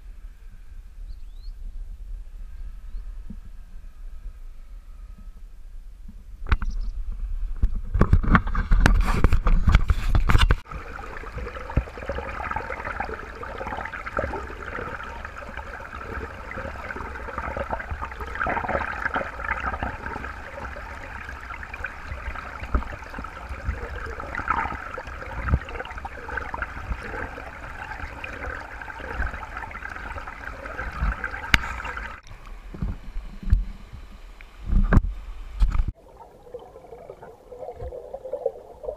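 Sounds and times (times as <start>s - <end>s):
stream water rushing: 10.6s - 32.5s.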